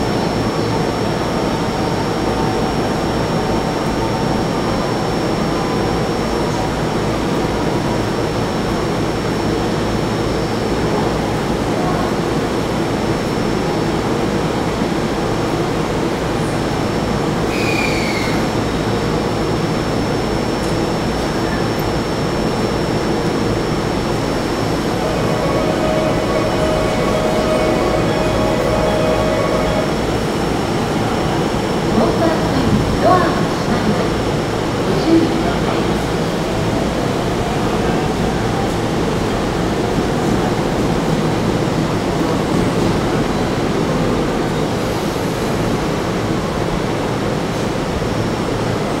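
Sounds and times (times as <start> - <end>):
train hum: 0.0 - 49.0
thin high whine: 20.0 - 32.5.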